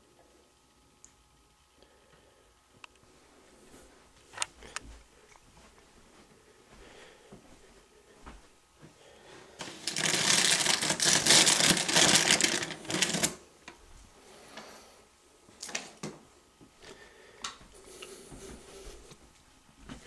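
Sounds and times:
rummaging in cardboard box: 9.6s - 13.3s.

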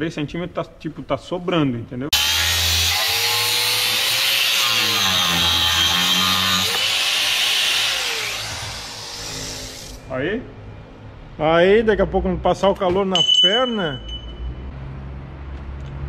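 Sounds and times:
angle grinder cutting metal: 2.2s - 10.0s.

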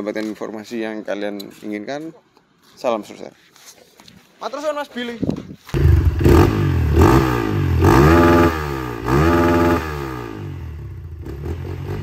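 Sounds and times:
motorcycle engine revving and idling: 5.8s - 12.0s.

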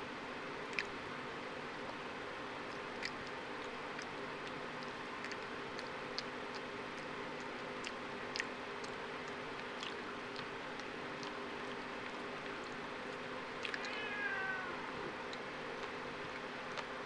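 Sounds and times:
steady background hum: 0.0s - 17.0s
monkey lip smacking and chewing: 0.7s - 1.0s, 2.6s - 13.9s.

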